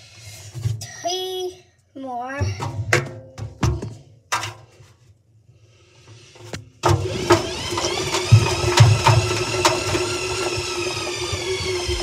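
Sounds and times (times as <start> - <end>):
washing machine drum whirring: 6.8 - 12.0.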